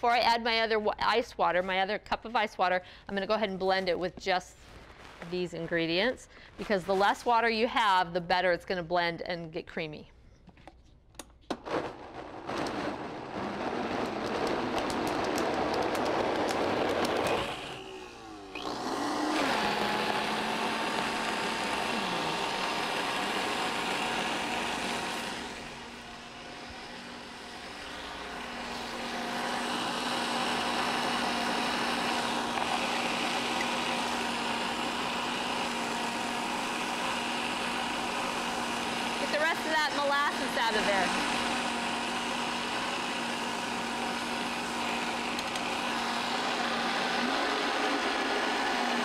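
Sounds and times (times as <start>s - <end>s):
blender motor running: 12.3s - 49.0s.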